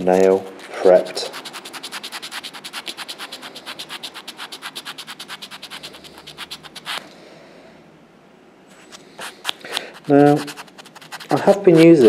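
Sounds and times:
nail buffer scratching fingernail: 1.3s - 7.0s, 9.2s - 12.0s.

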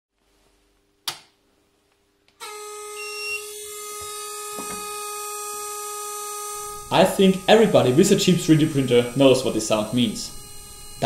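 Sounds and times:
fan buzzing whine: 2.4s - 11.0s.

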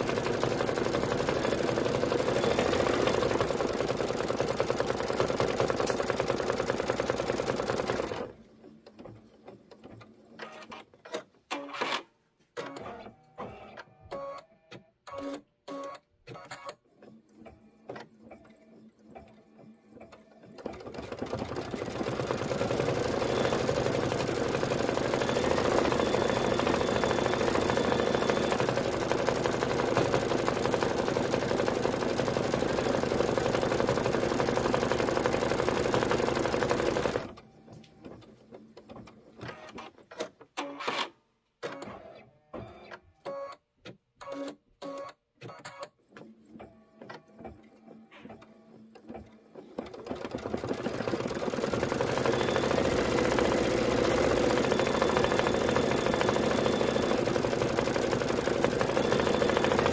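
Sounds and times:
embroidery machine stitching: 0.0s - 14.4s, 15.1s - 37.4s, 44.2s - 59.9s.

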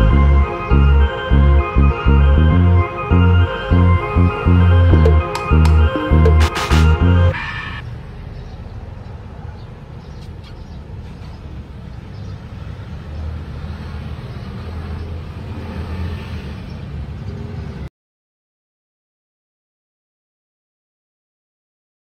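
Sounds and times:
road traffic rumble: 0.0s - 17.9s
vehicle passing: 11.6s - 17.9s.

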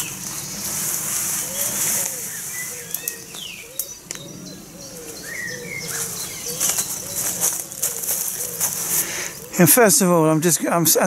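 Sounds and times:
nylon groundsheet rustling: 0.0s - 3.5s, 5.1s - 9.6s
pigeon cooing: 0.0s - 9.9s
footsteps in grass and leaves: 0.0s - 10.5s
small birds calling: 0.0s - 11.0s.

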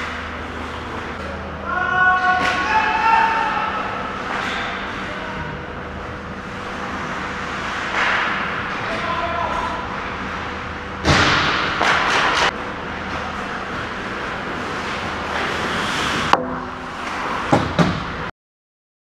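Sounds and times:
skates scraping on ice: 13.2s - 16.3s.

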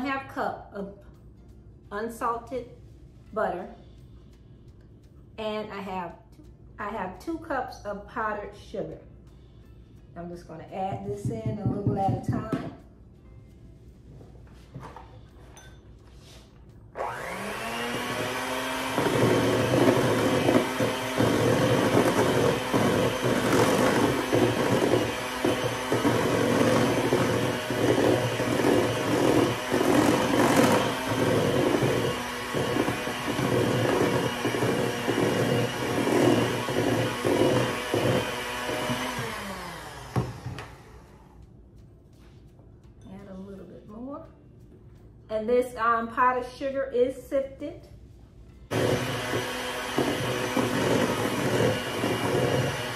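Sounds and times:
electric hand mixer whining: 17.0s - 41.3s, 48.7s - 52.9s.

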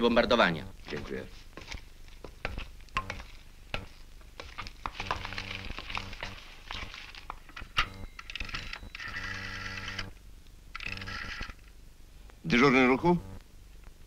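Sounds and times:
footsteps: 0.6s - 7.9s
low electric buzz: 5.0s - 6.4s, 7.7s - 13.7s.

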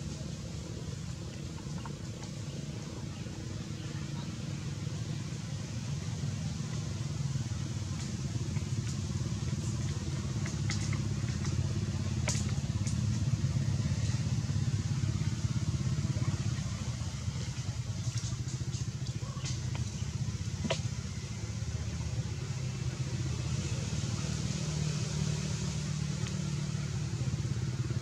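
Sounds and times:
engine rumbling: 0.0s - 28.0s.

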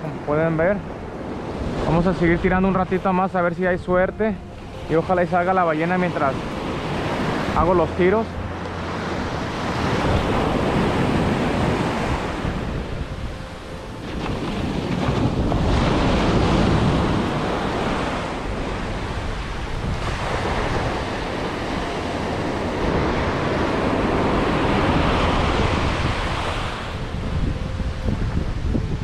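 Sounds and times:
wind buffeting microphone: 0.0s - 5.1s, 6.3s - 29.0s
surf breaking on beach: 13.9s - 27.6s.

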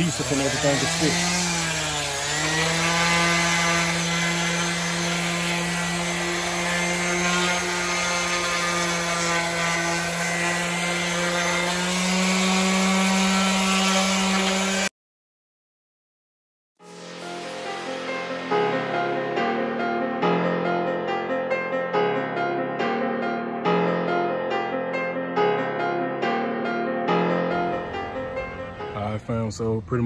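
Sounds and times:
electric sander on metal: 0.0s - 14.9s, 16.9s - 20.1s.

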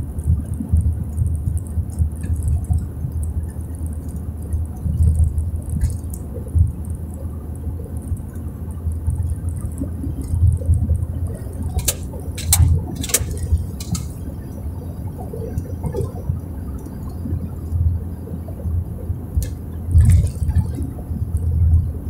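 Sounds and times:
car engine and tyres rumbling: 0.0s - 22.0s
sharp clicks: 11.7s - 14.2s.

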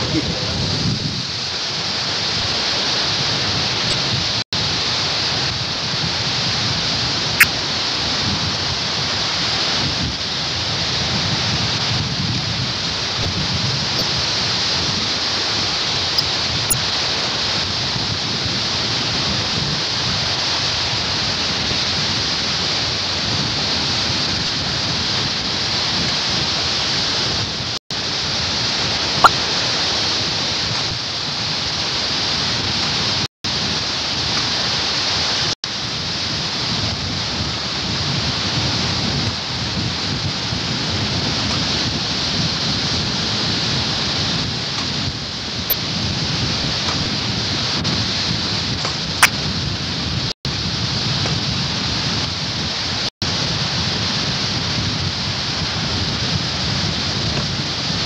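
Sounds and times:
surf breaking on beach: 0.0s - 58.0s.

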